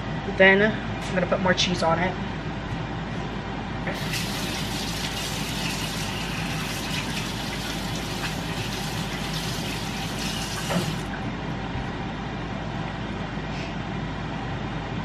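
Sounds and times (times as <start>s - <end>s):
faucet water running into sink: 3.9s - 11.1s
faucet shutting off knock: 10.4s - 11.1s.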